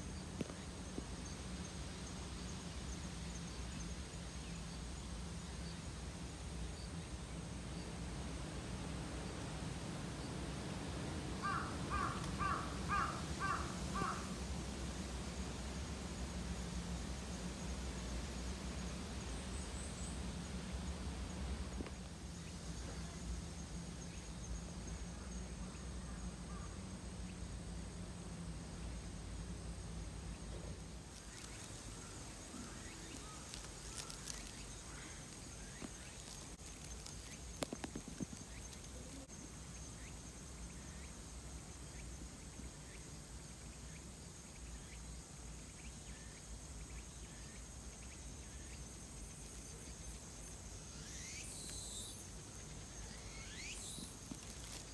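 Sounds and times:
insects trilling: 0.0 - 54.9.

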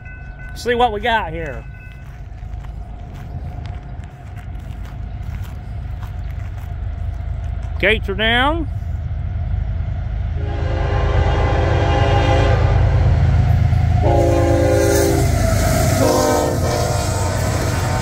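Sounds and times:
locomotive engines rumbling: 0.0 - 18.0
train air horn: 10.4 - 13.1, 14.0 - 18.0.

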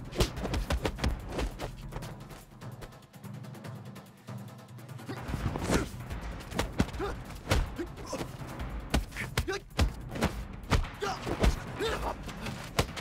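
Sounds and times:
fighters grunting and shouting: 0.0 - 1.5, 5.0 - 13.0
background music: 0.0 - 13.0.

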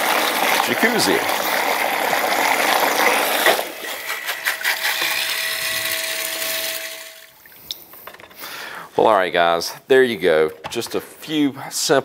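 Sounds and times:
pump churning water: 0.0 - 7.4
pump motor humming: 0.0 - 7.4.

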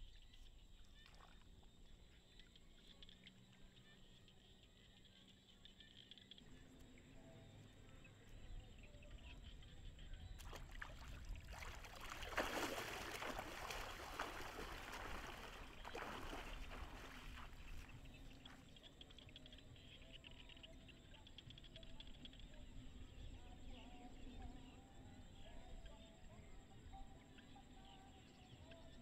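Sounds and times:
wading through shallow water: 8.5 - 19.1.

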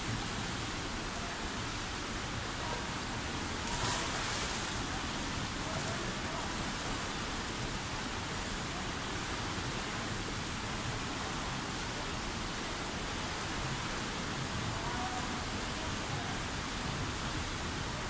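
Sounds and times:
swimmers splashing: 3.6 - 4.9.

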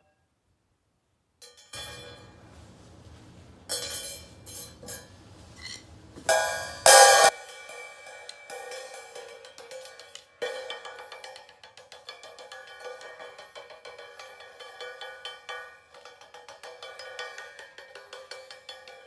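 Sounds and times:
chain rattling on cymbal: 3.7 - 19.0
cymbal struck with stick: 6.3 - 19.0.

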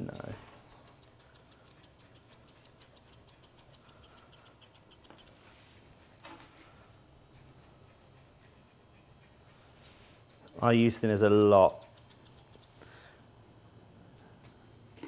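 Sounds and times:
scissors snipping hair: 0.0 - 5.4, 10.2 - 12.8.

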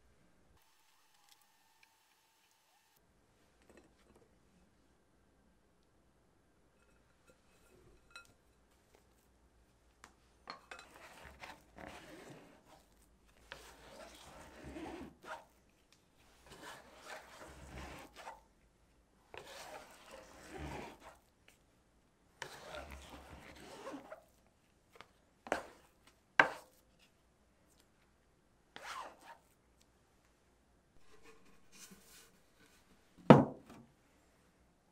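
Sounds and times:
utensil scraping in bowl: 10.5 - 15.5, 16.4 - 18.4, 19.4 - 21.2, 22.4 - 24.3, 25.5 - 26.8, 31.0 - 32.8.

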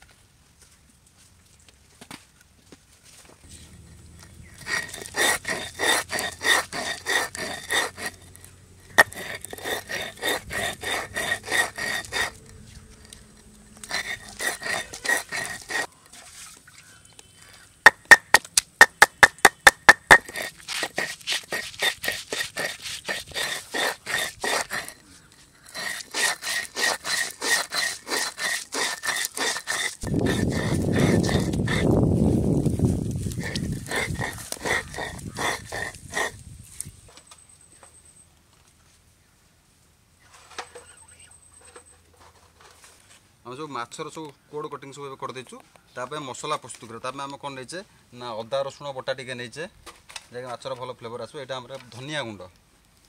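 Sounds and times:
stone roller grinding on stone slab: 3.5 - 16.6, 17.8 - 36.4
knife slicing on wooden board: 4.6 - 8.2, 8.9 - 13.1.

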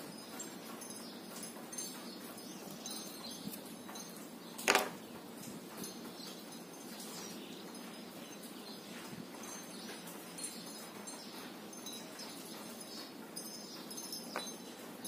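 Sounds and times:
faint outdoor background: 0.0 - 15.0
knife clattering on tabletop: 4.6 - 5.0.

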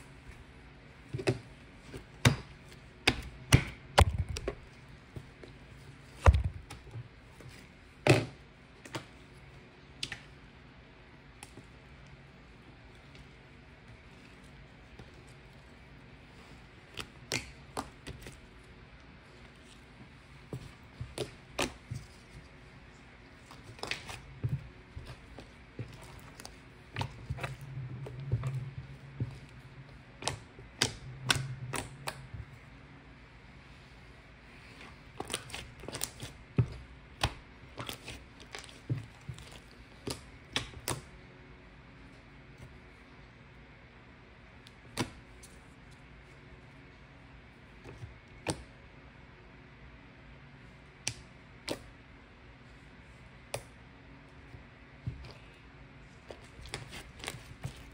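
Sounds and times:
low hum: 12.3 - 39.8.

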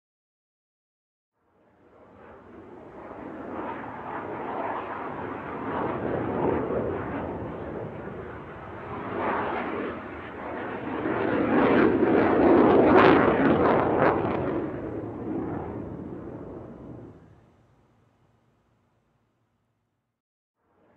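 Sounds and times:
jet aircraft roar: 1.6 - 18.0.

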